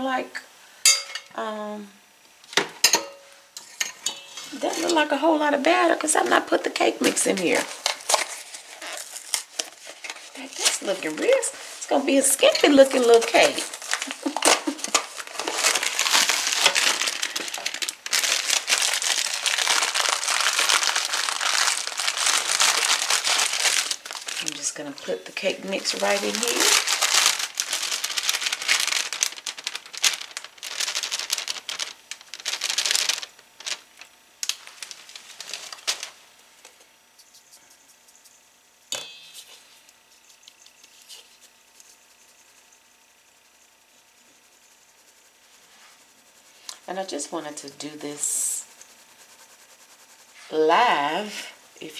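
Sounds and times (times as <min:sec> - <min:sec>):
metallic clink on bowl: 0:00.9 - 0:01.3
plastic bag crinkling: 0:04.5 - 0:36.4.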